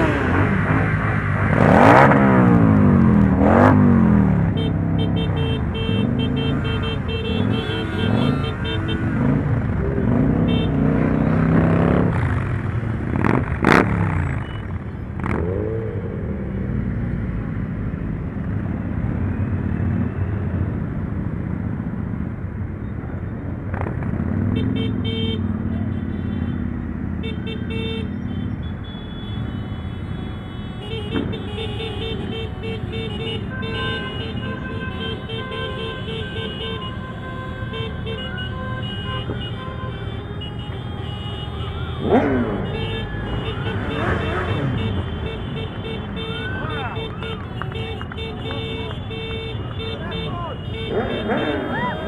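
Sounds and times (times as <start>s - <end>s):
motorcycle engines running: 0.0s - 29.5s, 40.4s - 52.0s
vehicle horns tooting: 4.4s - 12.4s, 24.4s - 52.0s.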